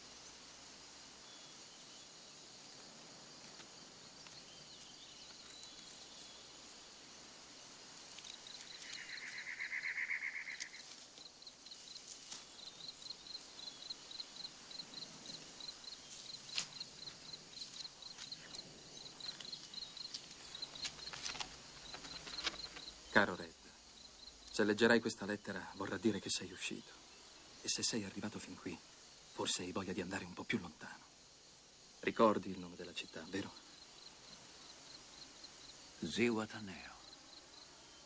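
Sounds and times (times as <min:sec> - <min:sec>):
insects chirping: 0:00.0 - 0:38.0
buzzing insect trill: 0:01.2 - 0:38.0
paper crinkling: 0:20.7 - 0:22.9.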